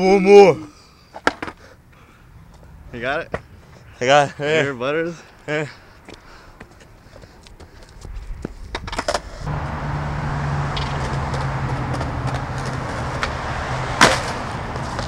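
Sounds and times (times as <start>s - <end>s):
skateboard wheels rolling on concrete: 2.4s - 15.0s
skateboard hitting ground: 8.7s - 9.4s, 10.7s - 15.0s.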